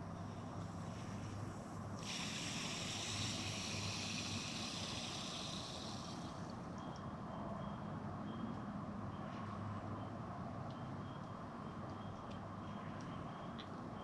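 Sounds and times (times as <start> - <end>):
water hissing through a hose: 1.6 - 6.6.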